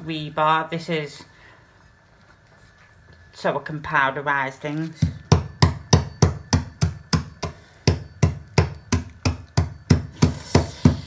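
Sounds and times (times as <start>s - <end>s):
metal bar pounding biscuits: 5.0s - 11.0s.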